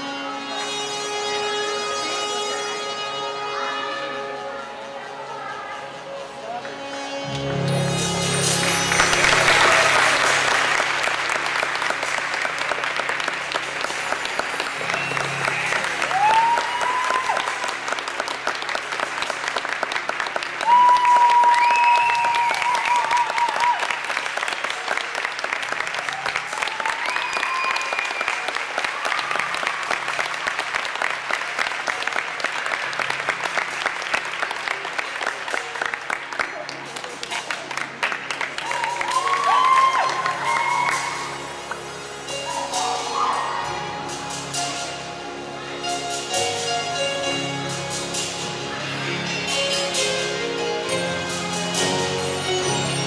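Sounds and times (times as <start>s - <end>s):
audience applauding: 8.6s - 41.8s
high calls from audience: 42.3s - 44.0s.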